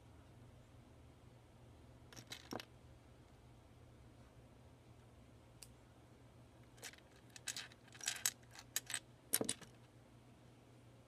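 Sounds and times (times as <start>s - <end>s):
plastic bricks clicking and rattling: 2.2s - 2.7s, 6.8s - 9.8s.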